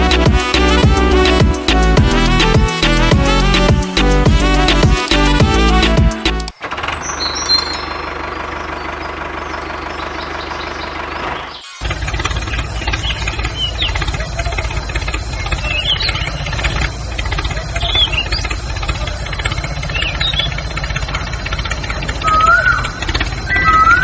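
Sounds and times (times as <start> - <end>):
diesel tractor engine chugging: 0.0 - 24.0
short high chirps: 7.1 - 8.3.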